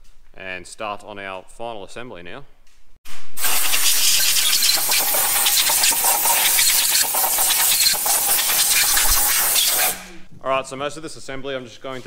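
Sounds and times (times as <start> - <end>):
compressed air gun hissing: 3.4 - 10.3.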